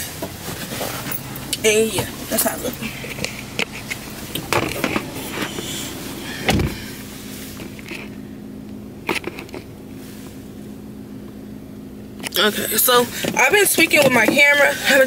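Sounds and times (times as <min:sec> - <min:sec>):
low hum inside car: 0:00.0 - 0:15.0
car door shutting: 0:00.2 - 0:08.2.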